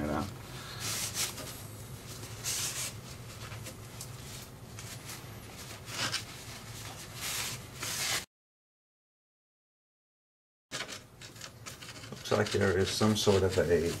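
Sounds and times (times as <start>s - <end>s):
steady low hum: 0.0s - 8.1s
rag scrubbing metal: 11.2s - 14.0s.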